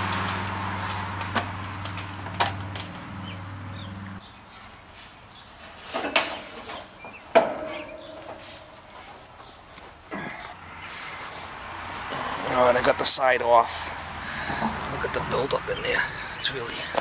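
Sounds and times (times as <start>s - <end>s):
sheet metal and tools clanking: 5.4s - 9.6s, 14.4s - 15.0s.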